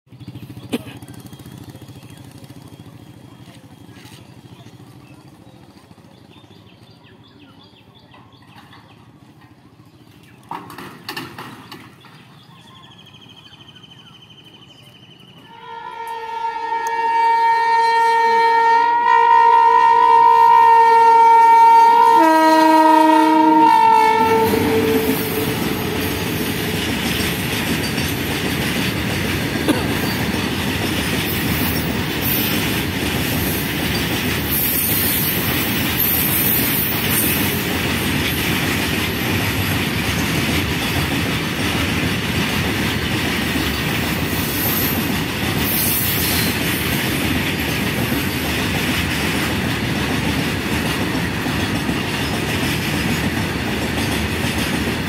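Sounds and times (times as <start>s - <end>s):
train wheels rumbling on rails: 0.1s - 55.0s
train horn blast: 15.5s - 26.7s.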